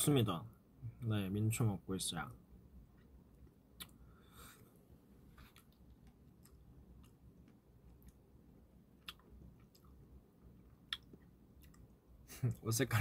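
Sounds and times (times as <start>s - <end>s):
mouth clicks while eating: 9.0s - 10.0s, 10.9s - 12.0s.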